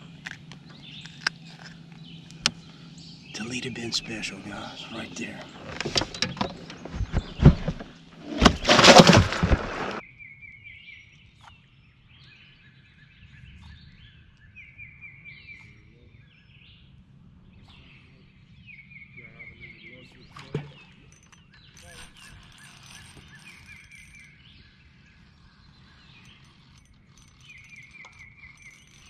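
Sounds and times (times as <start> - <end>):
handling noise: 5.1 - 10.0
songbird trilling: 17.6 - 29.0.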